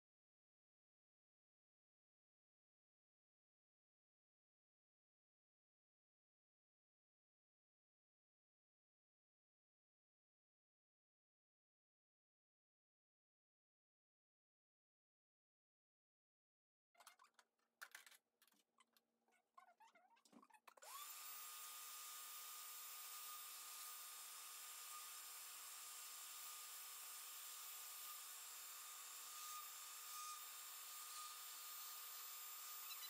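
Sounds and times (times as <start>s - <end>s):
shop vacuum running: 20.8s - 32.8s.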